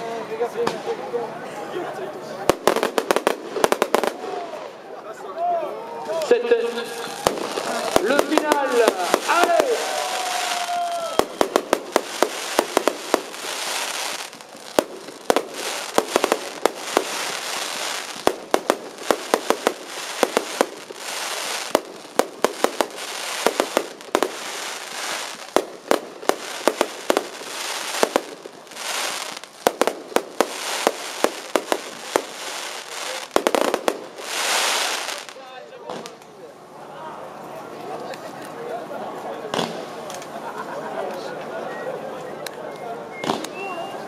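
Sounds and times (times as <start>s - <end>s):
firework shells bursting: 7.2s - 35.3s.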